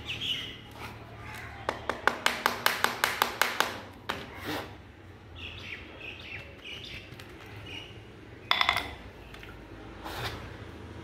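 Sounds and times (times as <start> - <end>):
small birds chirping: 0.0 - 2.1, 5.0 - 9.8.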